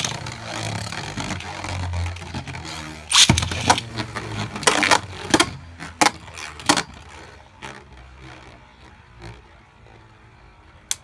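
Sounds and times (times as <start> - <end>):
spinning tops whirring: 0.0 - 9.3.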